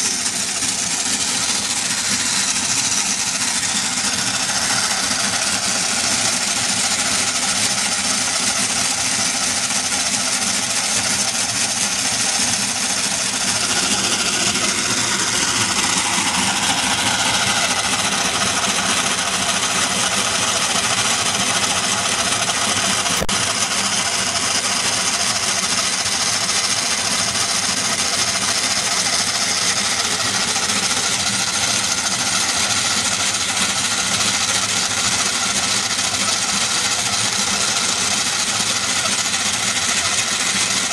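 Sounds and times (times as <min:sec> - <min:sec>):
model engine whirring and clatter: 0:00.0 - 0:40.9
sharp click: 0:23.1 - 0:23.4.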